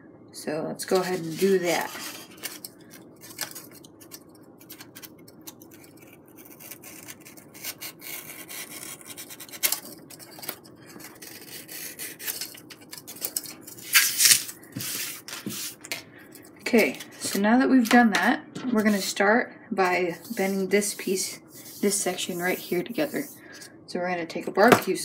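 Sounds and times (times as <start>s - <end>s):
blade scraping foam board: 0.9s - 2.4s, 20.2s - 23.4s.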